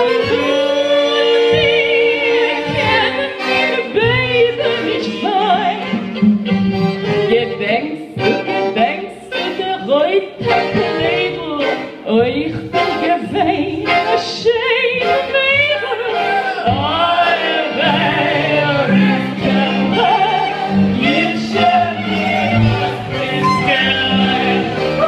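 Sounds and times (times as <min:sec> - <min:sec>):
accordion: 0:00.0 - 0:25.0
cello: 0:00.0 - 0:25.0
violin: 0:00.0 - 0:25.0
person singing with vibrato: 0:07.3 - 0:25.0
clarinet: 0:17.7 - 0:25.0
sustained low instrumental notes: 0:17.8 - 0:25.0.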